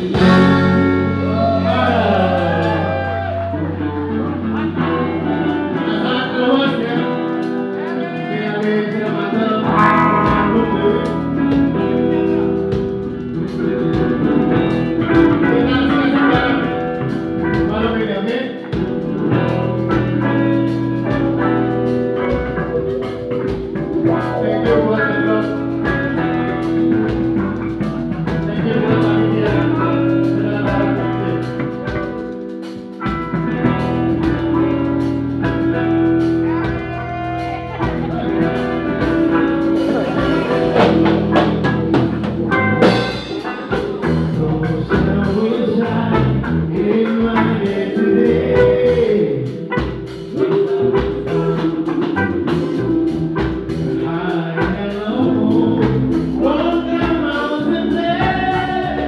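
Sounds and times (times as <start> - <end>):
person singing: 0.0 - 32.8, 33.5 - 59.0
bass guitar: 0.0 - 59.0
drum kit: 0.0 - 59.0
electric guitar: 0.0 - 59.0.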